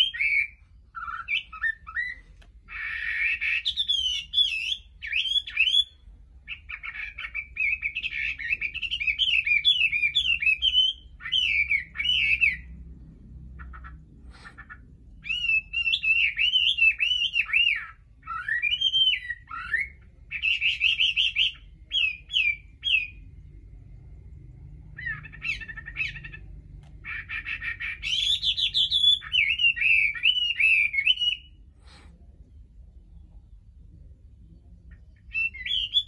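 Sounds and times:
bird singing whistled phrases: 0.0s - 12.7s, 15.2s - 23.2s, 27.2s - 31.6s, 35.2s - 36.0s.

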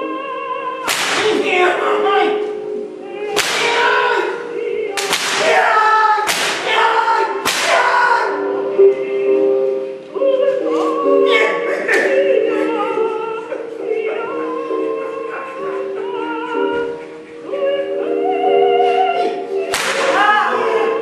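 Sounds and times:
voices singing held notes: 0.0s - 21.0s
whip cracks: 0.9s - 1.4s, 3.4s - 3.8s, 5.0s - 5.7s, 6.3s - 6.8s, 7.5s - 7.9s, 19.7s - 20.2s.

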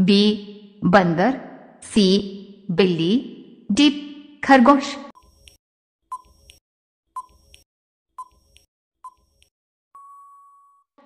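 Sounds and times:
short ticking beeps: 8.2s - 8.4s.

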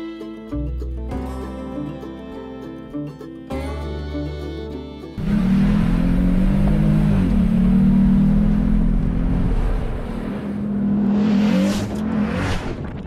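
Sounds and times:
vehicle engine running: 5.2s - 12.4s.

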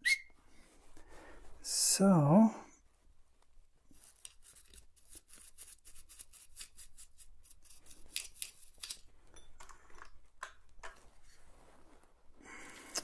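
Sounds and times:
brush scrubbing metal: 3.9s - 8.3s.

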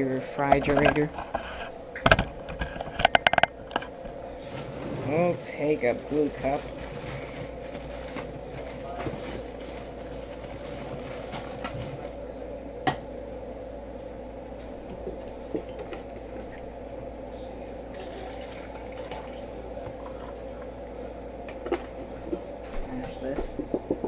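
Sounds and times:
electrical hum: 0.0s - 24.0s
plastic rustling: 4.4s - 12.2s
plastic cup tapping on countertop: 23.4s - 24.0s.

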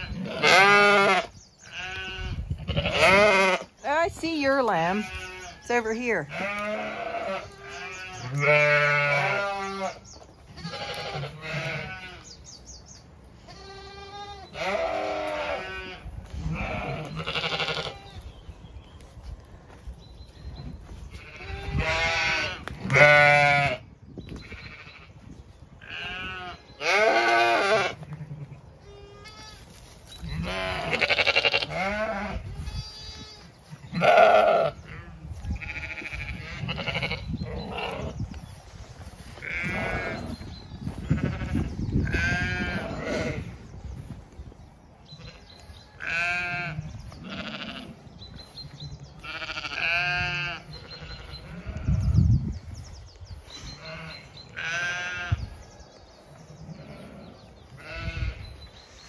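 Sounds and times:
sheep bleating: 0.0s - 3.8s, 4.8s - 12.3s, 13.5s - 18.1s, 21.2s - 23.8s, 25.8s - 29.6s, 30.3s - 38.1s, 39.4s - 40.4s, 41.1s - 43.5s, 46.0s - 48.0s, 49.2s - 52.0s, 53.8s - 55.4s, 56.8s - 58.5s.

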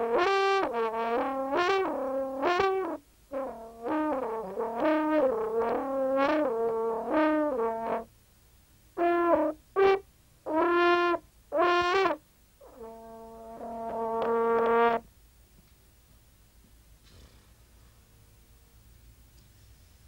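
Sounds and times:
brass horn playing: 0.0s - 8.1s, 9.0s - 15.1s.

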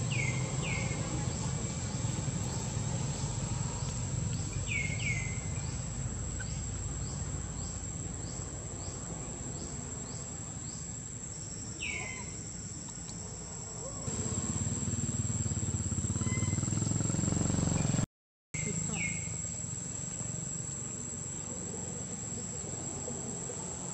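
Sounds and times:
high-pitched insect drone: 11.7s - 18.0s
sharp falling squeak: 16.2s - 16.8s.

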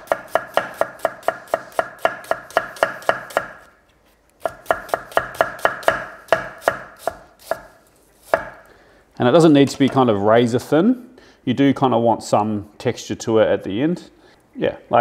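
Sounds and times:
knife chopping on wooden board: 0.0s - 3.7s, 4.4s - 8.6s.

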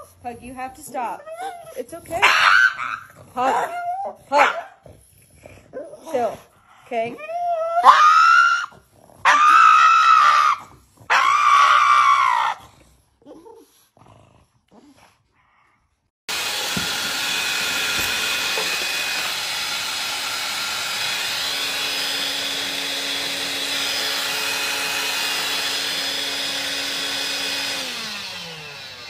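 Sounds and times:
dog crying high-pitched: 1.0s - 4.8s, 7.0s - 12.6s.

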